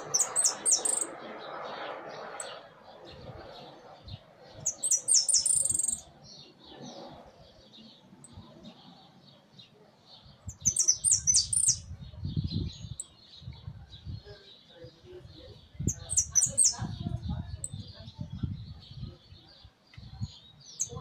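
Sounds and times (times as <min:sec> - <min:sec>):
faint chattering chirps: 0:00.0 - 0:21.0.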